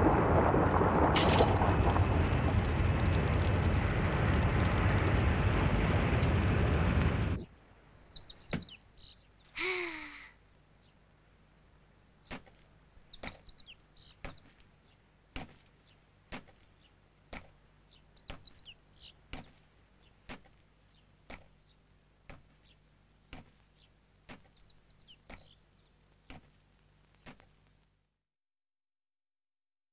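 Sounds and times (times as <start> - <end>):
low steady hum: 0.0 - 28.2
birds chirping: 7.4 - 11.1, 12.0 - 27.5.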